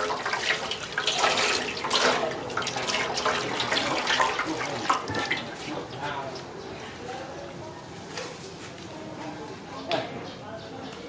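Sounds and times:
water splashing into metal basin: 0:00.0 - 0:05.9.

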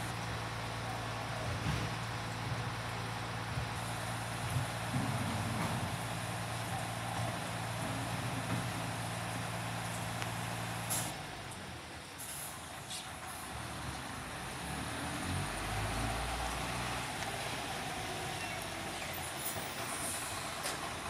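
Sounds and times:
truck diesel engine running: 0:00.0 - 0:21.0.

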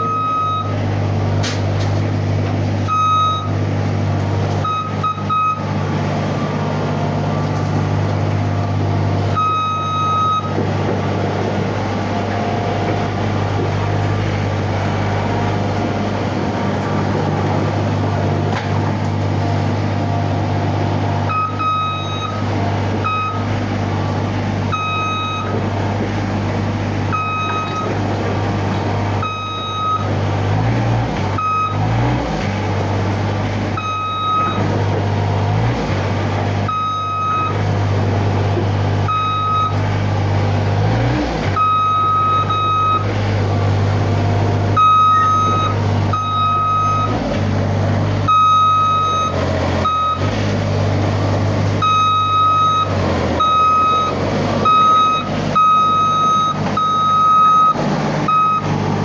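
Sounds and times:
backup alarm beeping: 0:00.0 - 0:00.7, 0:02.8 - 0:03.6, 0:04.6 - 0:05.7, 0:09.3 - 0:10.6, 0:21.3 - 0:25.9, 0:27.1 - 0:28.0, 0:29.2 - 0:30.2, 0:31.4 - 0:31.9, 0:33.8 - 0:34.7, 0:36.7 - 0:37.6, 0:39.1 - 0:39.8, 0:41.6 - 0:43.1, 0:44.0 - 0:47.2, 0:48.3 - 0:50.3, 0:51.8 - 0:58.7
diesel engine running: 0:00.0 - 0:59.0.

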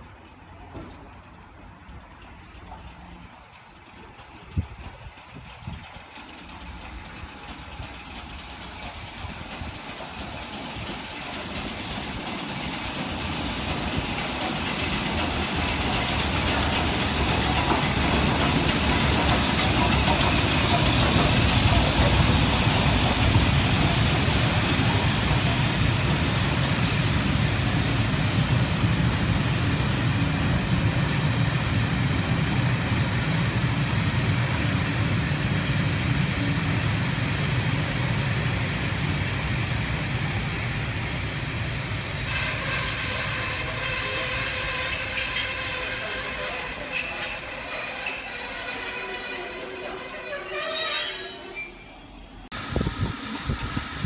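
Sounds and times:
coaches rumbling on rails: 0:00.0 - 0:54.0
steam locomotive passing: 0:00.0 - 0:54.0
hiss of steam: 0:08.6 - 0:33.5, 0:52.5 - 0:54.0.

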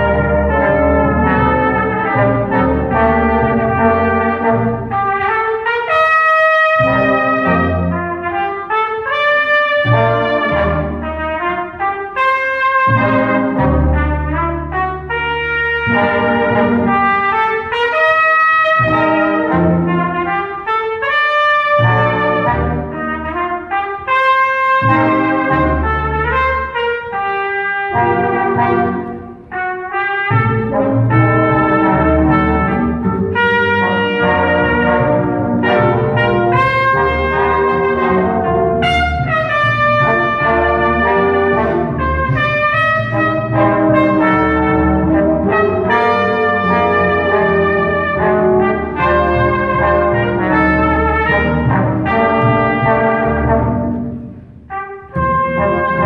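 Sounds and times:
small brass band playing: 0:00.0 - 0:56.0
upright string bass: 0:18.8 - 0:20.3, 0:30.3 - 0:54.3.

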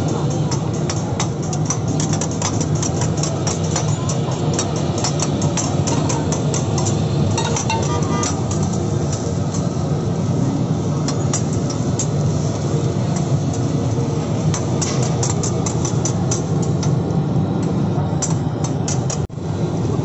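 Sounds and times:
metal spatulas scraping griddle: 0:02.0 - 0:08.8.

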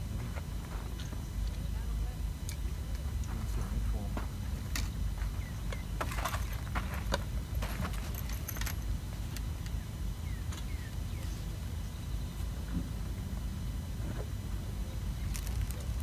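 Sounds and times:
fishing tackle clicking and rattling: 0:07.8 - 0:08.9.

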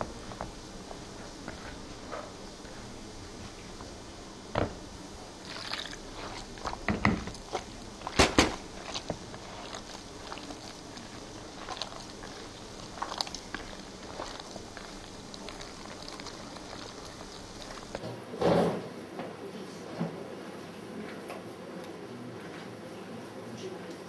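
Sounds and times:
dough squelching: 0:00.0 - 0:18.0
hands kneading sticky dough: 0:00.0 - 0:18.0.

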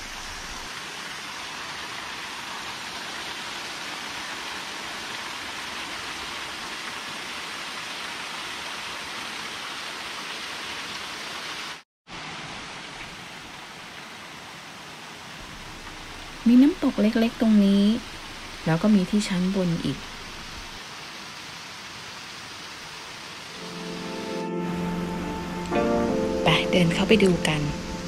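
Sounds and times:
small waterfall pouring over rocks: 0:00.0 - 0:23.7.

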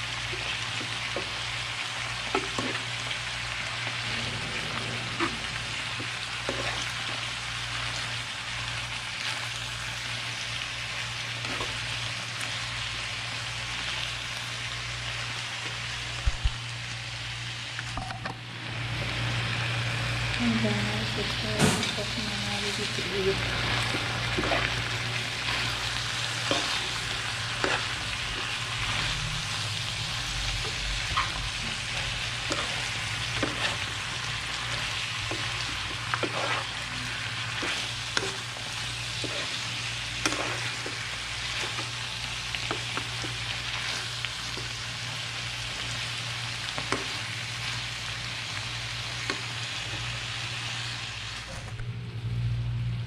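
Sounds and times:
stir-fry sizzling in a frying pan: 0:00.0 - 0:51.6
steady low hum: 0:51.5 - 0:53.0.

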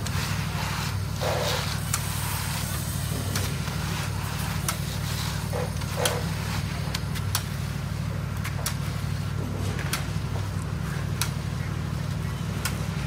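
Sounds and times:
rakes and shovels scraping concrete: 0:00.0 - 0:07.7.

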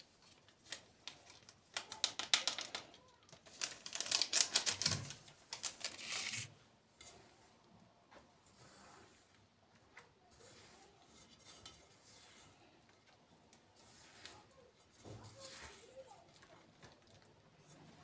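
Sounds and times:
paper sachet crinkling: 0:00.0 - 0:06.6
sachet tapping over a bowl: 0:00.7 - 0:06.0.

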